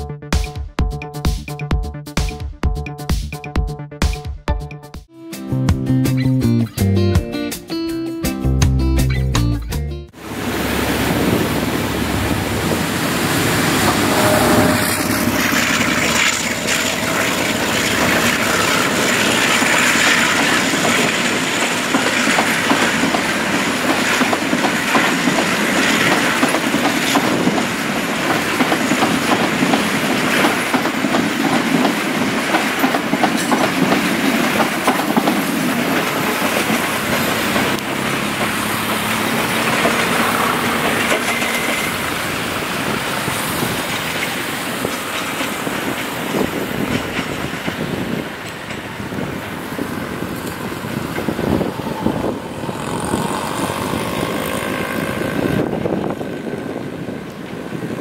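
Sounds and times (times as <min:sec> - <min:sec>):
high wheel squeal: 0:11.9 - 0:21.6, 0:37.2 - 0:45.4, 0:48.7 - 0:55.7
train wheels clattering over rails: 0:12.1 - 0:58.0.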